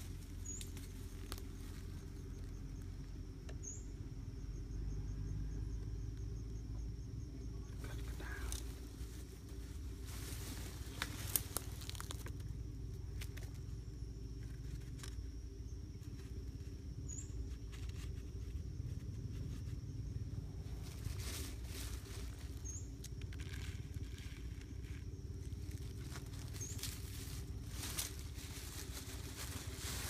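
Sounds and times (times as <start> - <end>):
dry leaves rustling: 0.0 - 2.8, 7.8 - 15.2, 16.0 - 16.8, 17.4 - 30.0
low rumble: 0.0 - 30.0.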